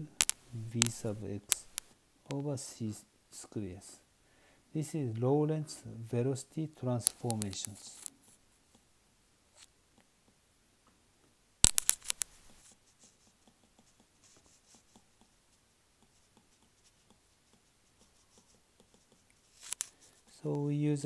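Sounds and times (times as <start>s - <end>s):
stylus tapping and scratching: 0.0s - 2.4s, 7.0s - 8.9s, 11.6s - 20.7s
sharp clicks: 0.2s - 2.4s, 7.0s - 8.1s, 11.6s - 12.6s.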